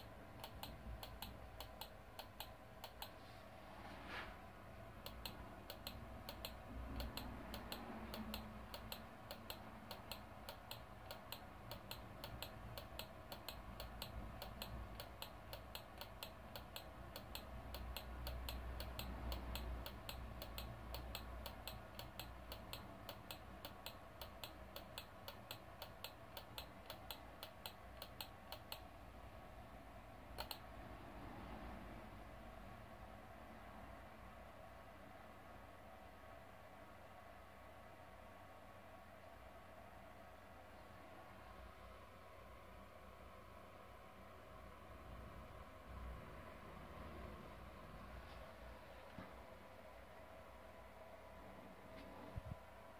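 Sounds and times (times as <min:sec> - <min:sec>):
rapid clicking: 0:05.0 - 0:28.9.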